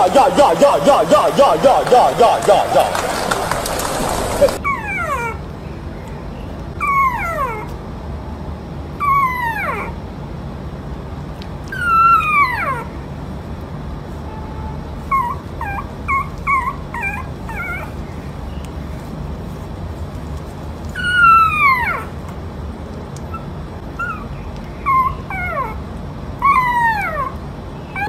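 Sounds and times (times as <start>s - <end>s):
puppy whining: 2.5s - 5.5s, 6.7s - 7.8s, 9.0s - 10.0s, 11.6s - 13.0s, 15.0s - 19.1s, 20.9s - 22.4s, 23.2s - 28.0s
puppy yipping: 3.6s - 5.4s, 6.7s - 7.8s, 9.0s - 10.0s, 11.6s - 13.0s, 15.0s - 19.0s, 20.9s - 22.3s, 23.2s - 25.8s, 26.4s - 28.0s.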